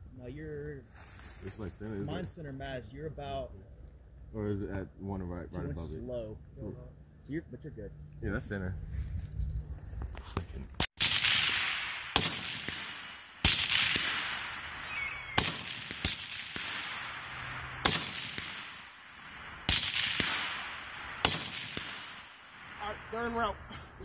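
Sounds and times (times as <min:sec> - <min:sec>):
rifle shots echoing: 0:11.0 - 0:23.1.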